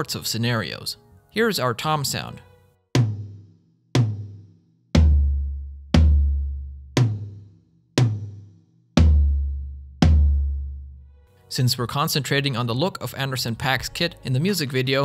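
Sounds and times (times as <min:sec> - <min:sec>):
rack tom hits: 0:03.0 - 0:04.4, 0:05.0 - 0:10.9
deep floor tom hits: 0:03.0 - 0:11.0.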